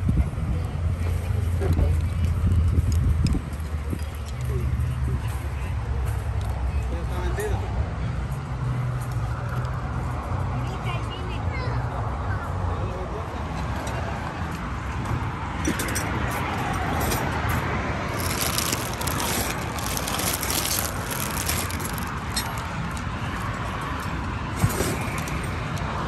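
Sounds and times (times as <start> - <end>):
crackly rustling: 18.1 - 23.2.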